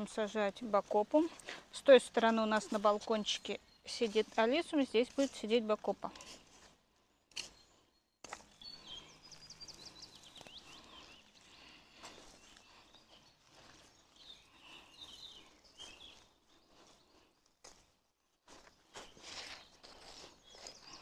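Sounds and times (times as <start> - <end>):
soil rustling: 0.0 - 21.0
birds chirping and trilling: 7.4 - 17.3.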